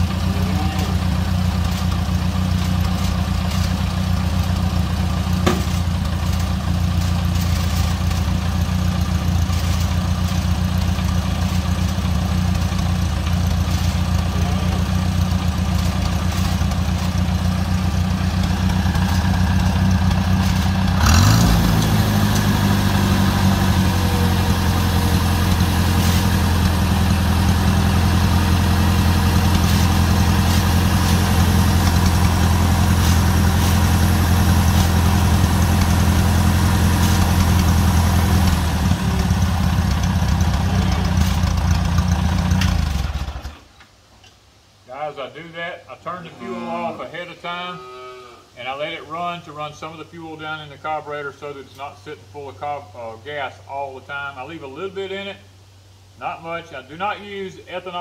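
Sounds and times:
tractor engine idling: 0.0 - 43.8.

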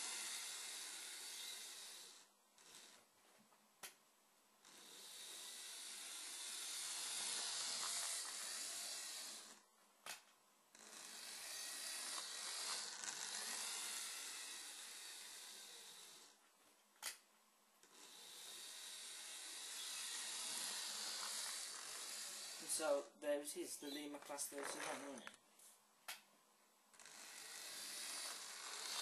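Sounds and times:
model locomotive motor running: 0.0 - 3.0, 4.6 - 9.6, 10.8 - 16.3, 17.9 - 23.1, 27.0 - 29.0.

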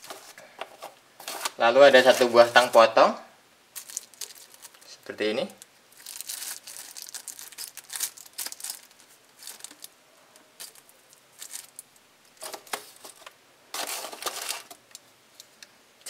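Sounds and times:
plastic bag crinkling: 0.0 - 3.0, 3.7 - 10.0, 10.6 - 15.0.

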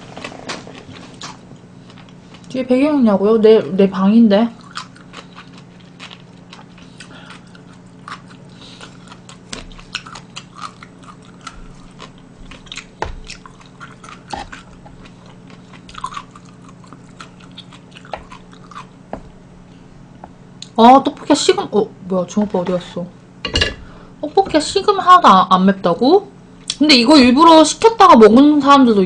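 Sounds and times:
steady low hum: 0.0 - 29.0
person chewing: 0.1 - 2.5, 4.6 - 19.8.

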